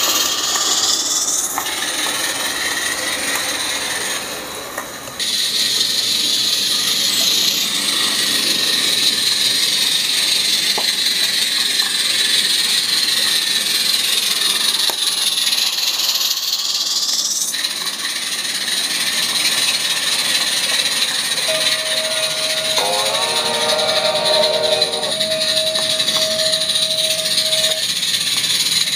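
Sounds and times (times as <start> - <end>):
chord of tones: 21.5 - 27.9
steady high tone: 21.5 - 27.9.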